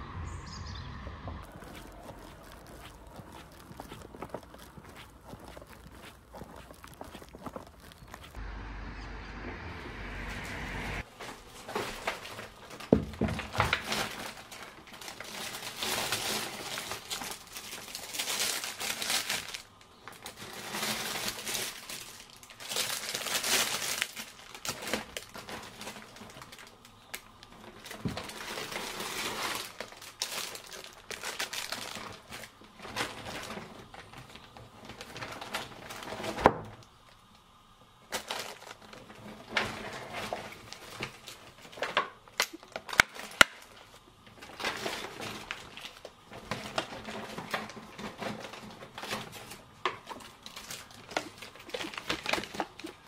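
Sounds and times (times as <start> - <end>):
fabric bag rustling: 1.4 - 8.4
plastic packaging crinkling: 1.4 - 8.4, 11.1 - 37.4, 38.1 - 53.0
items knocking on counter: 12.9 - 13.8.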